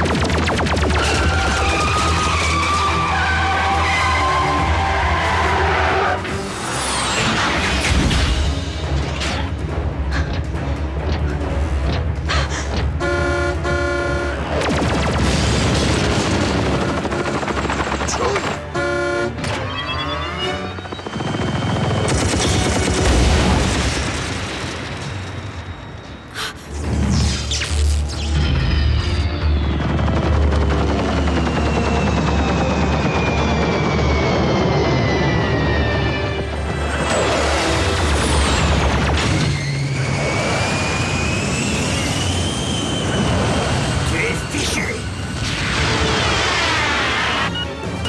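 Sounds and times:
sci-fi blaster fire: 14.4s - 18.7s
explosions: 14.5s - 17.1s, 21.9s - 25.7s
engine whine: 28.3s - 48.0s
jet engines rushing: 29.6s - 48.0s.

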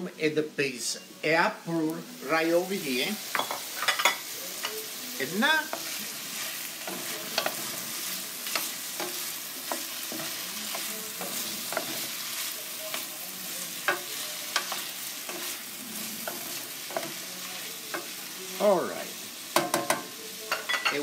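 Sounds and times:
vegetables sizzling in a pan: 0.0s - 21.0s
wooden spoon knocking pan: 19.6s - 20.9s.

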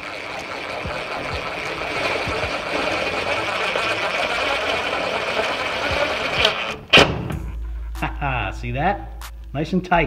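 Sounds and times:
screw gun driving a screw: 0.0s - 7.0s.

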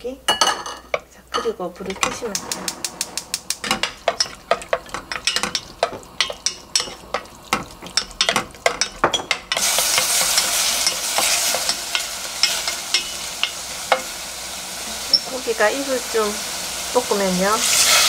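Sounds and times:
meat sizzling: 3.4s - 18.0s.

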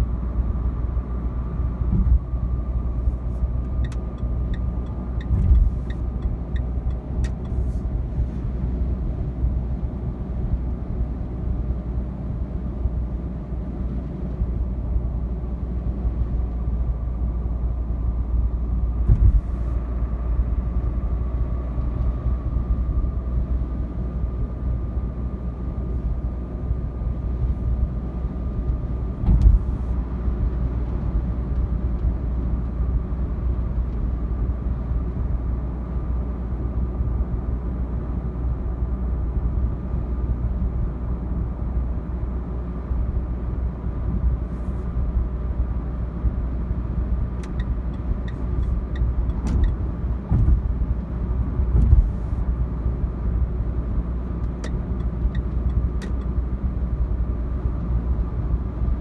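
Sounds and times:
diesel engine drone in cabin: 0.0s - 59.0s.

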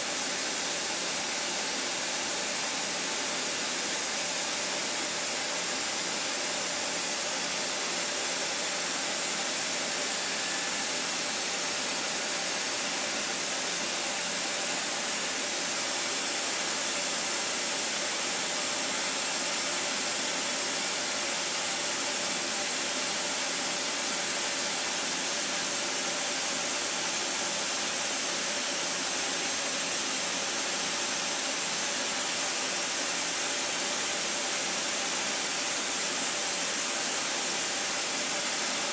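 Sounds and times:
milling machine hiss: 0.0s - 38.9s.

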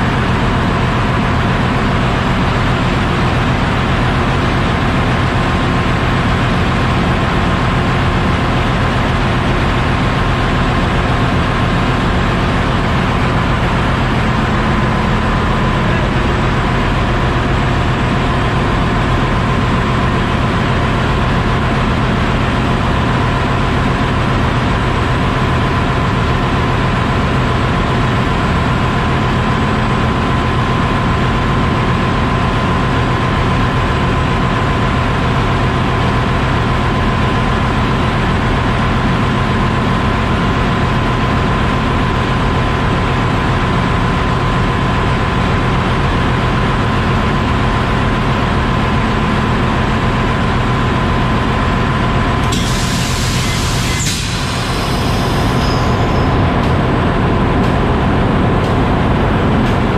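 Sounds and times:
steady high whine: 0.0s - 32.4s, 44.9s - 59.9s
marine diesel engine running: 0.0s - 59.9s.

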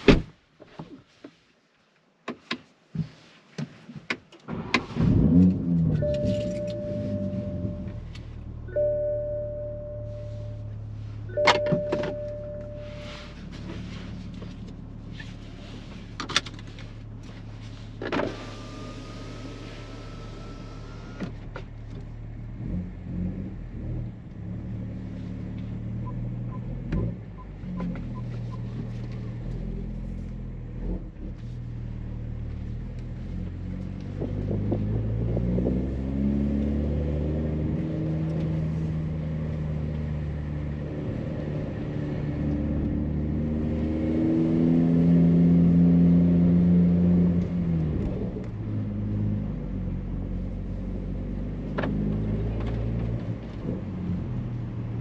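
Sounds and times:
engine revving: 4.8s - 8.2s, 32.7s - 54.4s.

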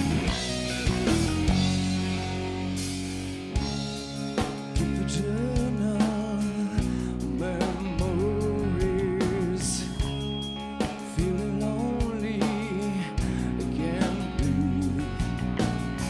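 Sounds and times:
bass guitar: 0.0s - 16.0s
electric guitar: 0.0s - 16.0s
steady drum beat: 0.0s - 16.0s
man singing: 4.7s - 16.0s.

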